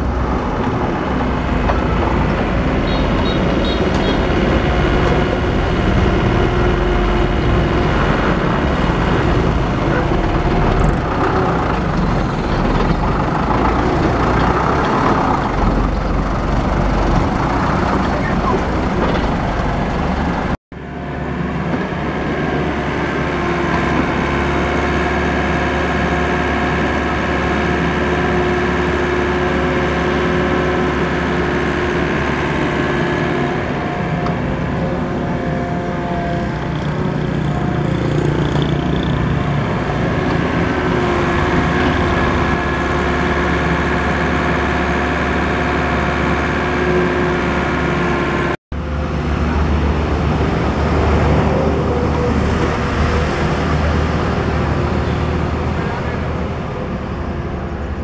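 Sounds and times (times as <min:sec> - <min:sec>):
diesel engines running: 0:00.0 - 0:58.0.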